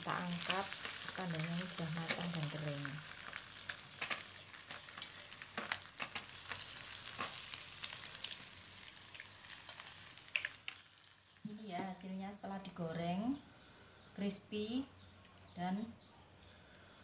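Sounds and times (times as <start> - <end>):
oil sizzling in a frying pan: 0.0 - 12.0.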